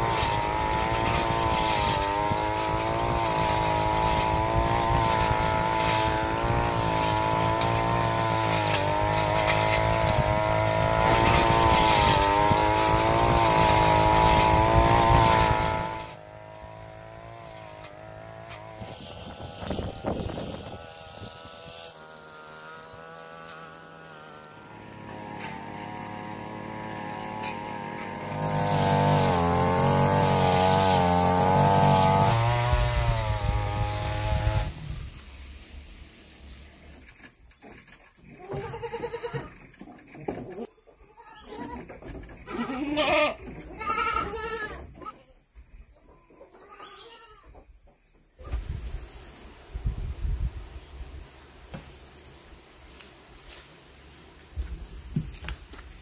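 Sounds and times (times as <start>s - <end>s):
goats bleating: 38.4s - 39.5s, 41.1s - 45.2s, 46.6s - 47.5s.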